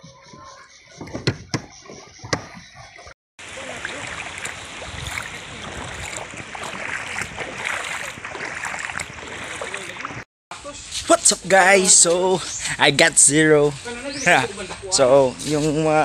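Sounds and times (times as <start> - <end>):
water lapping around boat: 0.0 - 10.3
sharp knocks: 1.0 - 2.6.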